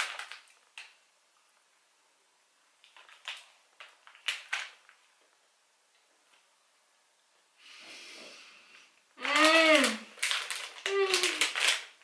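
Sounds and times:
plastic wrapper crinkling: 0.0s - 1.0s, 2.8s - 5.4s, 9.2s - 12.0s.

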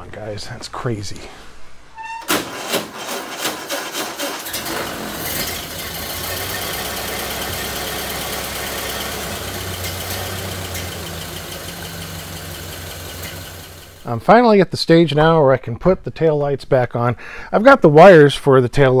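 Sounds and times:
engine cranking and idling: 2.3s - 14.0s.

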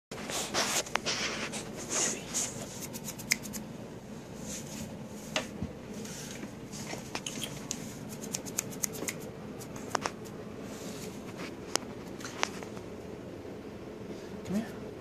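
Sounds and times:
hands rustling and rubbing: 0.2s - 3.6s, 4.4s - 12.8s.

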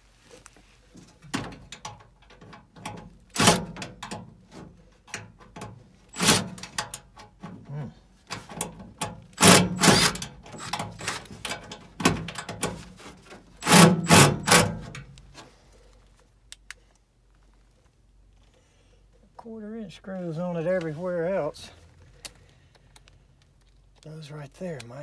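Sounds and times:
knocks and scrapes on sheet metal: 1.3s - 15.1s.

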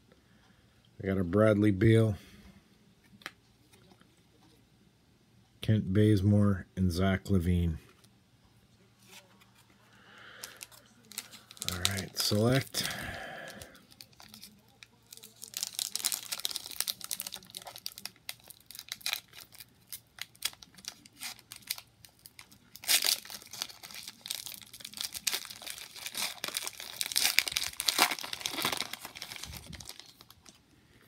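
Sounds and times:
foil wrapper crinkling and tearing: 10.2s - 30.6s.

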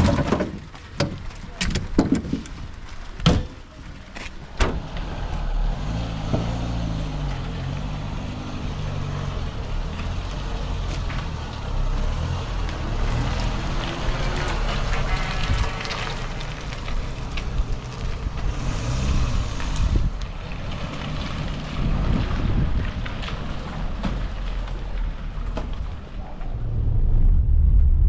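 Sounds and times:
firewood knocking: 0.0s - 2.6s.

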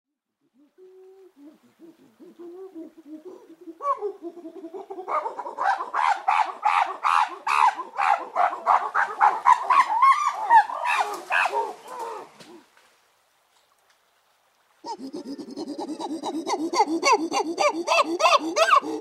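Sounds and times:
chimpanzee hooting calls: 2.2s - 12.3s, 14.8s - 19.0s.

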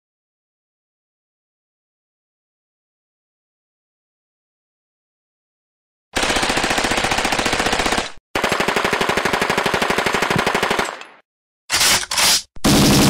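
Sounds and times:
automatic gunfire bursts: 6.2s - 13.0s.

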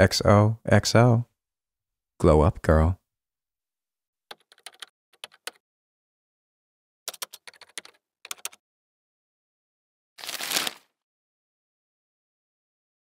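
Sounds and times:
keyboard typing clicks: 4.3s - 5.6s, 7.1s - 8.6s
paper being crumpled: 10.2s - 11.0s.

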